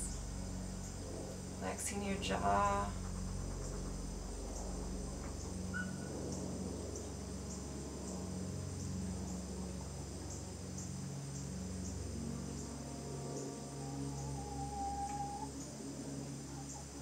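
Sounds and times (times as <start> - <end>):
crickets chirping: 0.0 - 17.0
low steady hum: 0.0 - 17.0.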